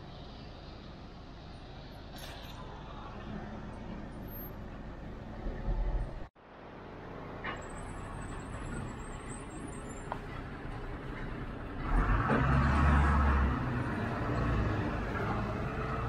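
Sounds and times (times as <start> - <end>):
traffic engines humming: 0.0 - 16.0.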